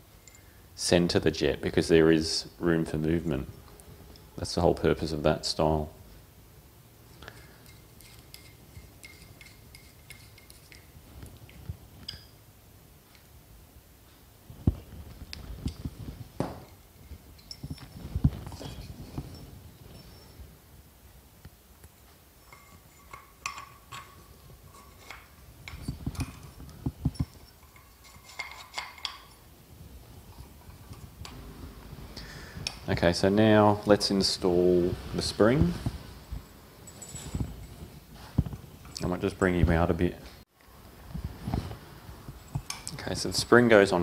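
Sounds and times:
light metallic clinks: 0:00.1 - 0:00.6, 0:07.1 - 0:12.4, 0:15.3 - 0:20.5, 0:21.8 - 0:29.5, 0:36.3 - 0:39.6, 0:42.3 - 0:44.0
screwdriver metallic ticks: 0:07.6 - 0:10.9, 0:22.5 - 0:26.4, 0:27.2 - 0:29.4.

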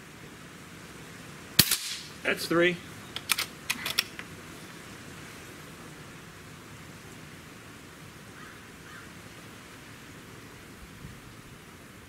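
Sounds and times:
low steady hiss: 0:00.0 - 0:12.0
air rifle bolt clicks: 0:03.2 - 0:04.3.

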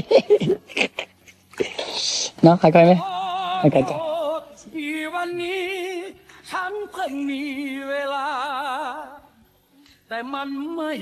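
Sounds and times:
person singing with vibrato: 0:02.8 - 0:11.0.

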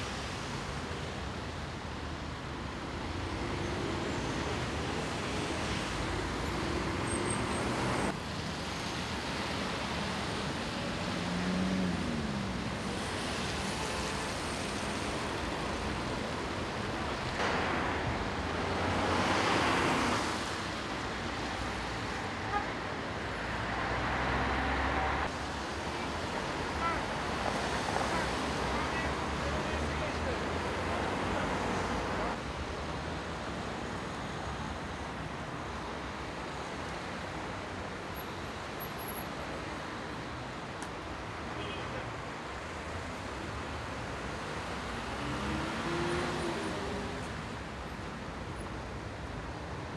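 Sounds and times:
road traffic: 0:00.0 - 0:49.9.

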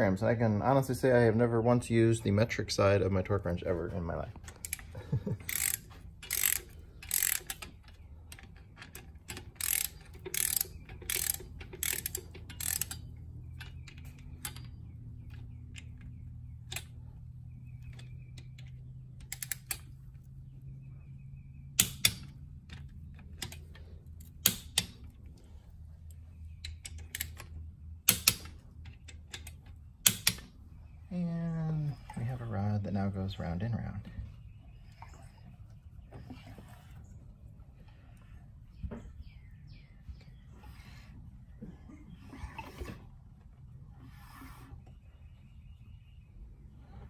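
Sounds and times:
socket ratchet clicking: 0:04.5 - 0:17.0, 0:17.8 - 0:19.9, 0:21.8 - 0:25.2, 0:26.6 - 0:30.5
torque wrench clicking off: 0:05.4 - 0:14.6.

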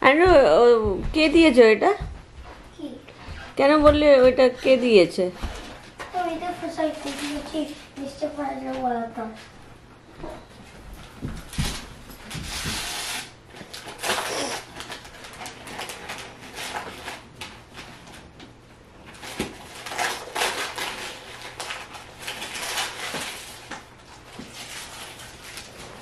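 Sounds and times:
wrapping paper crinkling and tearing: 0:06.5 - 0:08.1, 0:11.7 - 0:18.4, 0:19.0 - 0:26.0.

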